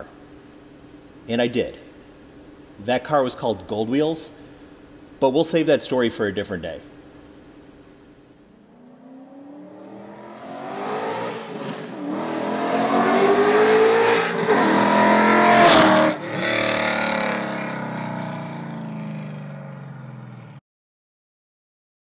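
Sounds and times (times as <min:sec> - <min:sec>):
car engine revving past: 0:08.7 - 0:19.8.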